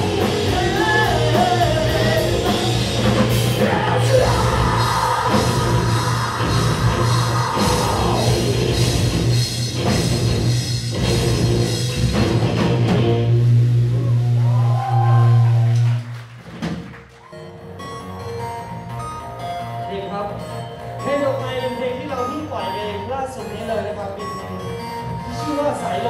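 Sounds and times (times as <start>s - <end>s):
person singing: 0.0s - 8.8s
rock band playing: 0.0s - 26.0s.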